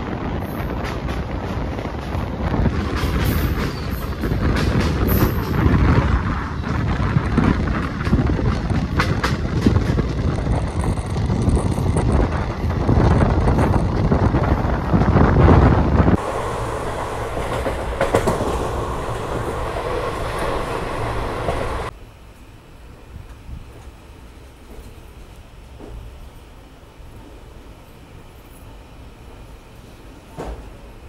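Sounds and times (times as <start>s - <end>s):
train wheels rumbling on rails: 0.0s - 22.0s
sharp clacks over the track: 16.2s - 21.9s.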